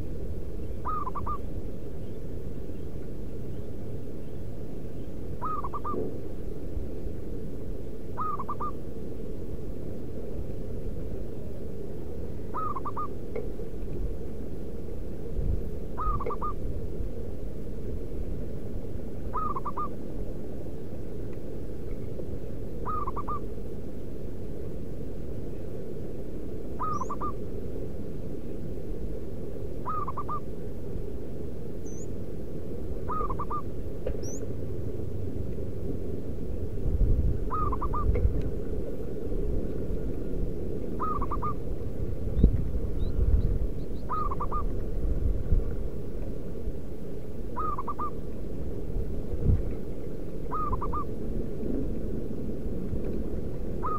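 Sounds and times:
low background noise: 0:00.0 - 0:53.9
dove cooing: 0:00.8 - 0:01.5, 0:05.4 - 0:06.1, 0:08.2 - 0:08.8, 0:12.5 - 0:13.2, 0:16.0 - 0:16.6, 0:19.3 - 0:20.0, 0:22.8 - 0:23.5, 0:26.8 - 0:27.4, 0:29.8 - 0:30.5, 0:33.0 - 0:34.3, 0:37.4 - 0:38.2, 0:41.0 - 0:41.6, 0:44.0 - 0:44.8, 0:47.5 - 0:48.2, 0:50.5 - 0:51.2.

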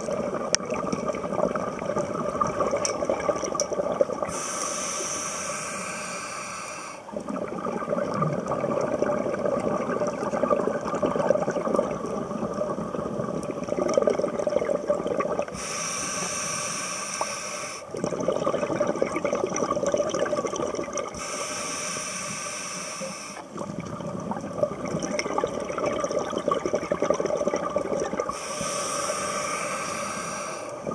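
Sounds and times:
crackling exhaust bubbles: 0:00.0 - 0:06.3, 0:07.0 - 0:30.9
regulator inhale hiss: 0:04.3 - 0:07.1, 0:15.5 - 0:17.9, 0:21.2 - 0:23.5, 0:28.3 - 0:30.9.

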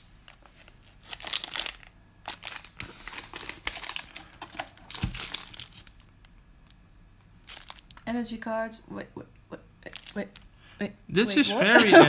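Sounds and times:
plastic bag crinkling: 0:00.2 - 0:06.8, 0:07.4 - 0:08.0.

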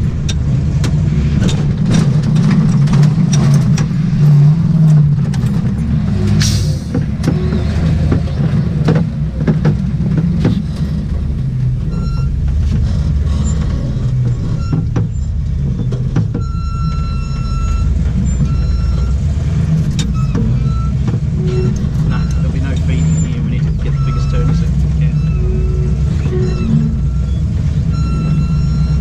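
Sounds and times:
knocks and rattles: 0:00.0 - 0:25.3
car engine running: 0:00.0 - 0:29.0
high electronic beep: 0:11.9 - 0:12.4, 0:16.4 - 0:19.2, 0:20.1 - 0:29.0.

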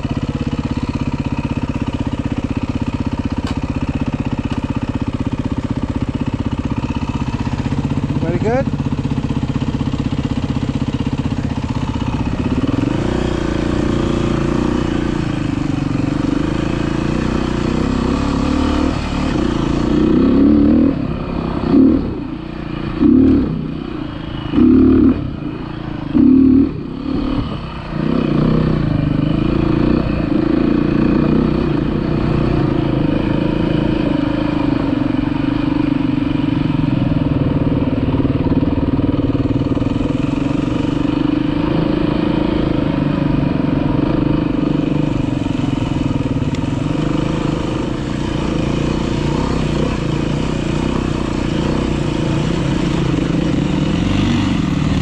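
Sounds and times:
dirt bike engine revving: 0:03.0 - 0:55.0.

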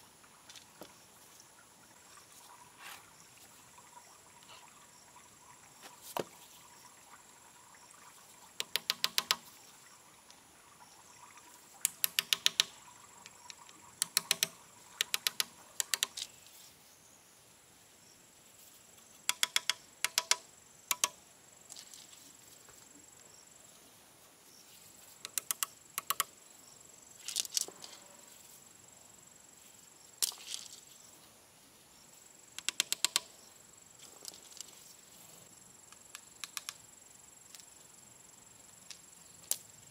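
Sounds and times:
pebbles clacking together: 0:27.2 - 0:28.0, 0:30.2 - 0:30.9.

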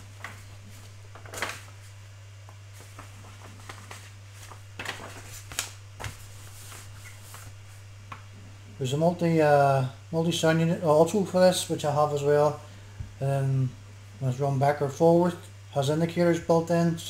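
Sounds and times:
steady low hum: 0:00.0 - 0:17.0
paper pages turning: 0:00.1 - 0:02.0, 0:02.7 - 0:08.2.

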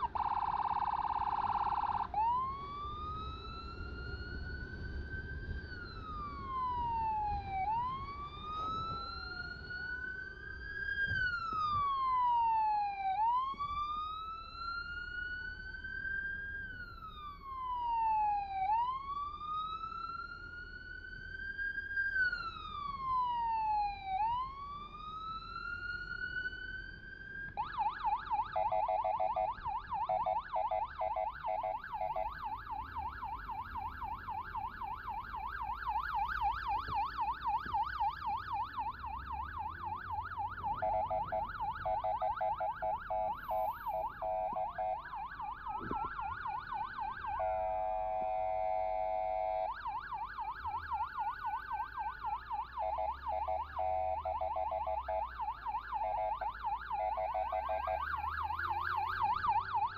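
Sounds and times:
electronic siren wail and yelp: 0:00.0 - 0:59.9
steady horn-like tone: 0:47.4 - 0:49.6.

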